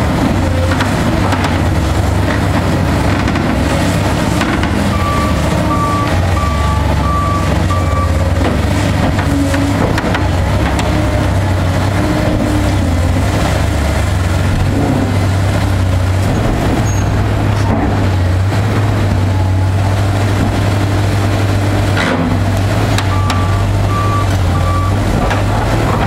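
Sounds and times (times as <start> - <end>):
excavator diesel engine drone: 0.0 - 26.0.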